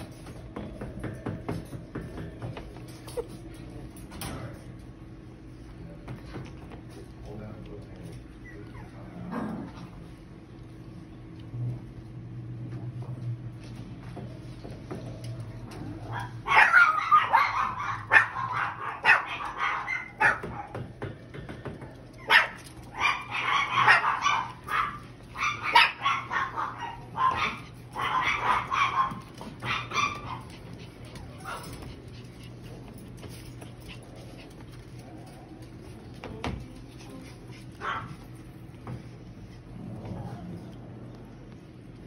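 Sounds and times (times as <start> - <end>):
puppies yipping and barking: 22.2 - 32.4.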